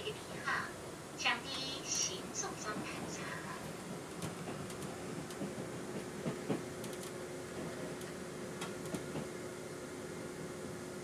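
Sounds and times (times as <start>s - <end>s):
train interior running hum: 0.0s - 11.0s
clicks and knocks from train car: 4.0s - 9.4s.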